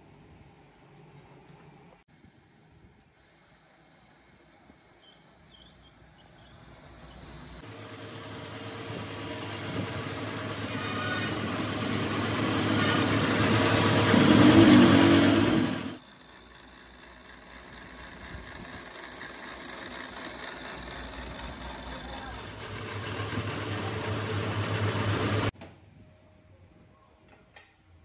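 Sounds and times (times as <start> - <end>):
quiet grinding and motor: 6.6 - 25.5
grinder grinding metal: 7.6 - 16.0.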